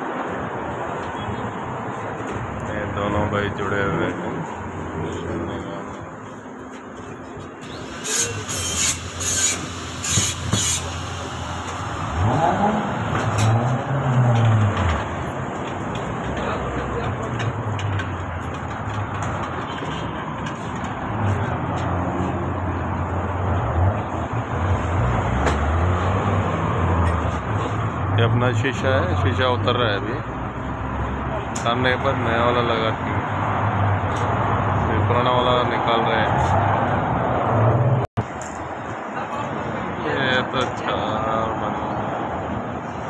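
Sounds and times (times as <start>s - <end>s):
vehicle engines running: 0.1s - 43.0s
short hissing bursts: 7.8s - 11.7s.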